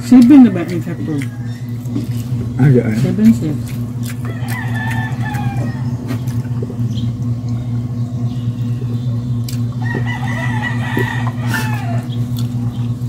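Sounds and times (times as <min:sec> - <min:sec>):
steady low hum: 0:00.0 - 0:13.0
rooster crowing: 0:00.5 - 0:02.0, 0:04.2 - 0:06.2, 0:09.8 - 0:12.2.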